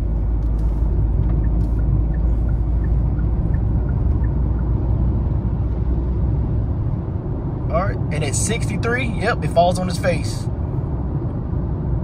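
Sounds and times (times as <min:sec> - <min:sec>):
turn signal ticking: 0:00.0 - 0:06.0
car engine and road rumble: 0:00.0 - 0:12.0.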